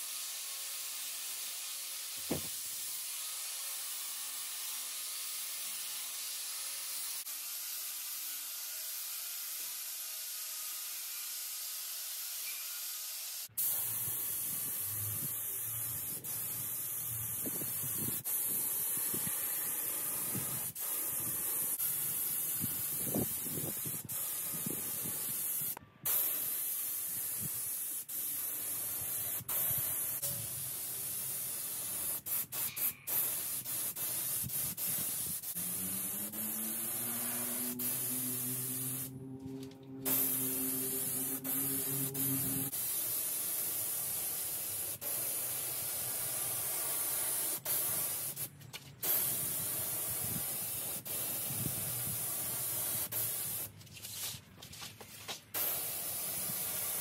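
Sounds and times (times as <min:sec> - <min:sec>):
paint spray gun hissing: 0:00.0 - 0:09.8, 0:10.7 - 0:53.7, 0:55.5 - 0:57.0
low hum rising in pitch: 0:35.6 - 0:42.7.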